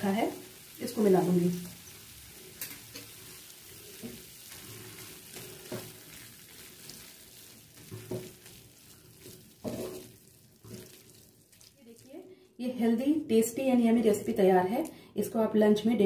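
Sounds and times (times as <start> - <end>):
food sizzling in a pan: 0.0 - 12.3.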